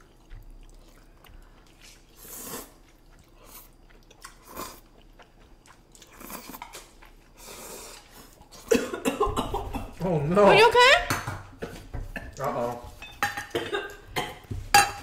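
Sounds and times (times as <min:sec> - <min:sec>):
slurping and chewing noodles: 0:00.0 - 0:10.7.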